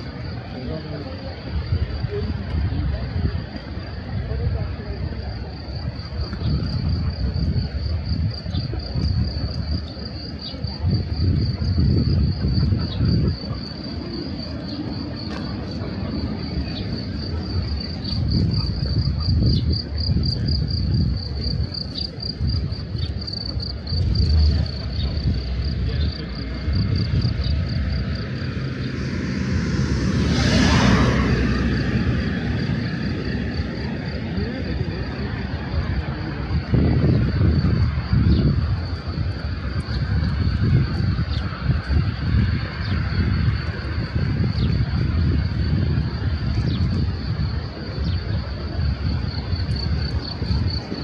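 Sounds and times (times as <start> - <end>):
low uneven rumble: 0.0 - 51.0
insects trilling: 3.5 - 51.0
vehicle passing: 24.0 - 36.6.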